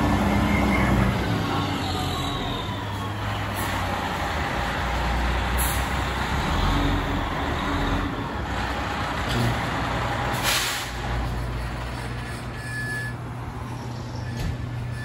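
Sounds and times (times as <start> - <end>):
diesel truck engine running: 0.0 - 15.0
air brakes hiss: 10.4 - 11.0.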